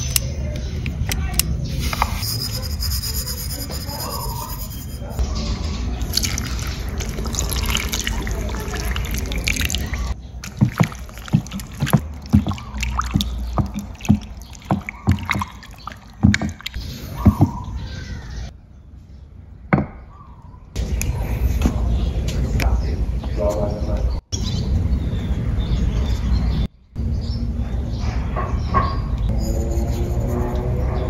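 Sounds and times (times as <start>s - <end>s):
water pouring into a bowl: 6.0s - 17.5s.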